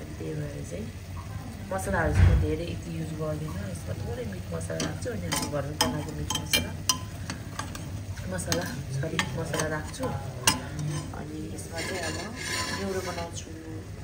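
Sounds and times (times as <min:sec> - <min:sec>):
meat sizzling: 0:00.0 - 0:14.0
steady low hum: 0:00.0 - 0:14.0
metal spatula clinking on pot: 0:04.6 - 0:13.4.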